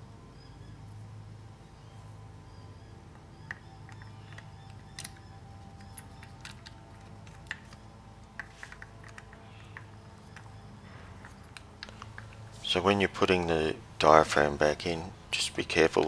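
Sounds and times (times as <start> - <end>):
faint low hum: 0.0 - 16.0
carburettor parts clicking: 3.4 - 12.5.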